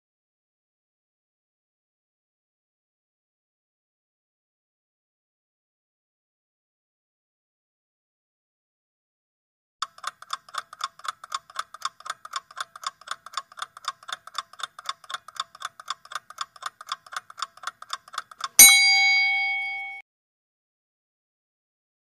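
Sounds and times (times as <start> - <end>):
clock ticking fast: 9.8 - 20.0
loud bell ding: 18.6 - 20.0.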